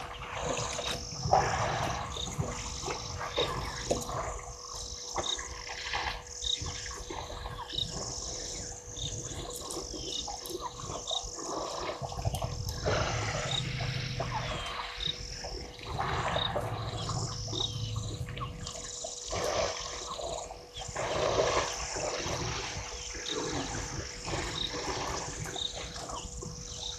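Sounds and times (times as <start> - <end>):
elephant low rumbles: 0.0 - 26.9
water splashing and sloshing: 0.0 - 26.9
bird chirping: 6.4 - 21.8.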